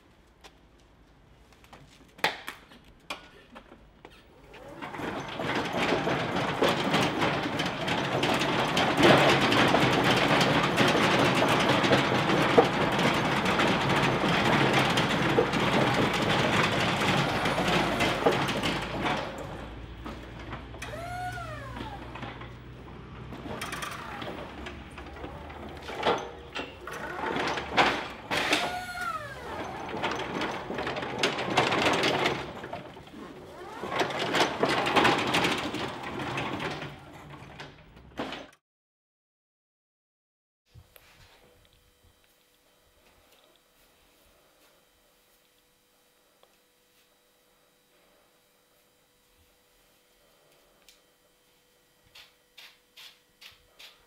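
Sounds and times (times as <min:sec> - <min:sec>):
pallet stacker motor: 0:04.1 - 0:38.5
squeaky whines: 0:17.0 - 0:18.6, 0:20.8 - 0:22.6, 0:26.9 - 0:30.3.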